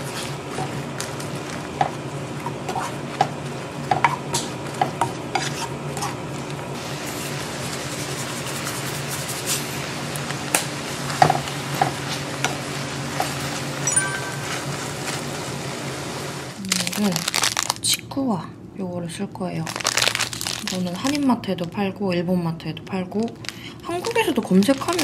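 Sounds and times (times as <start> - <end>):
peppers sizzling in frying pan: 0.0 - 17.8, 22.9 - 25.0
spatula scraping pan: 1.7 - 6.2.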